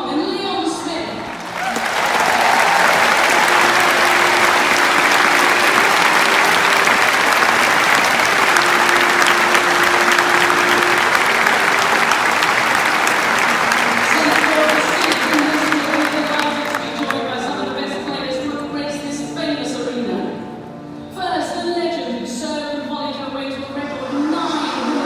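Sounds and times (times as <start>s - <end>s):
crowd applauding: 1.1s - 17.7s.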